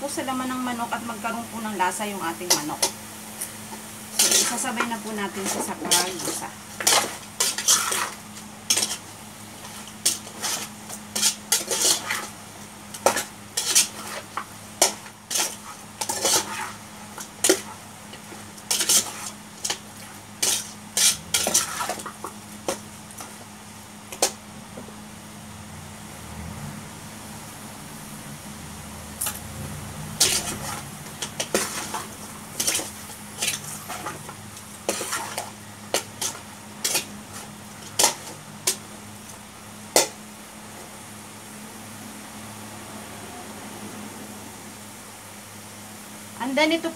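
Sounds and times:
light sizzle: 0.0s - 46.9s
metal spatula scraping a pot: 4.1s - 12.4s, 13.0s - 16.8s, 18.6s - 22.2s, 30.2s - 38.8s.

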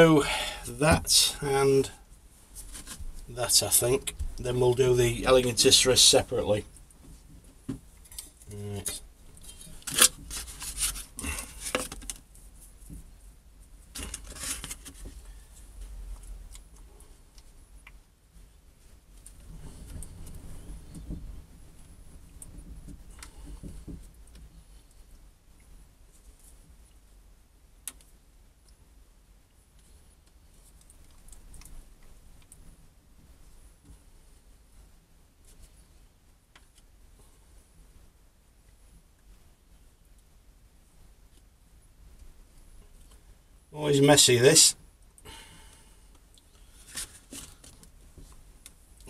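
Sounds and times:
wooden stick scraping metal tin: 9.5s - 12.1s, 14.0s - 15.0s.

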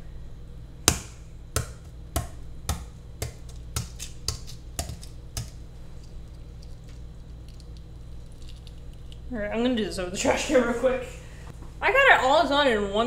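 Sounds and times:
egg tapping on stone countertop: 0.9s - 5.6s.

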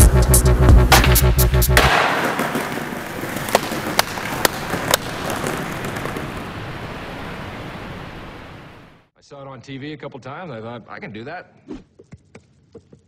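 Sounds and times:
electronic music: 0.0s - 2.0s
skateboard wheels rolling on pavement: 0.8s - 9.1s
sharp skateboard clacks: 0.9s - 6.6s.

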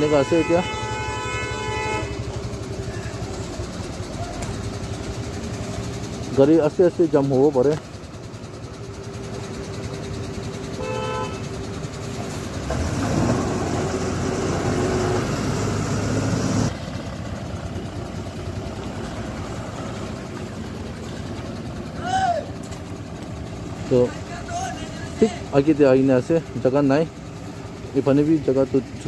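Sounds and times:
short horn toot: 0.0s - 2.3s, 10.8s - 11.5s
truck diesel engines running: 0.0s - 29.0s.

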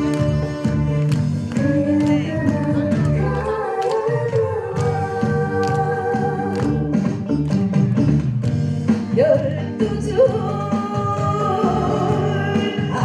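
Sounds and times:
backing track music: 0.0s - 13.0s
woman singing into a microphone: 1.6s - 7.0s, 9.2s - 13.0s.

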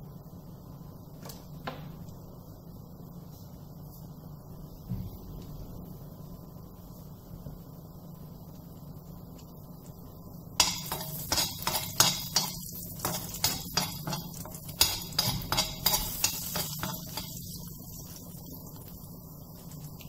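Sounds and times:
low steady hum: 0.0s - 20.0s
spoon scraping a frying pan: 10.6s - 17.6s.

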